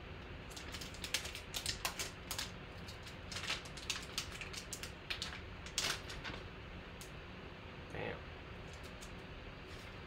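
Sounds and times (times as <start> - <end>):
plastic wrapper crinkling: 0.5 - 6.4.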